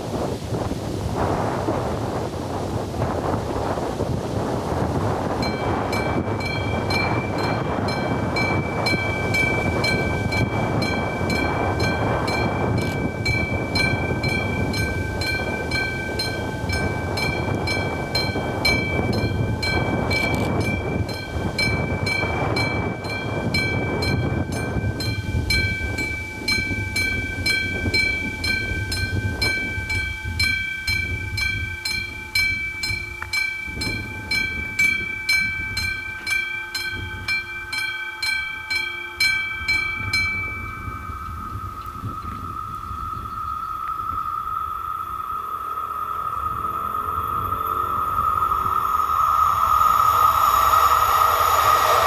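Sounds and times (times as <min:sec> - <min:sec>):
level crossing warning bell: 0:05.2 - 0:51.6
low rushing rumble: 0:40.1 - 0:52.0.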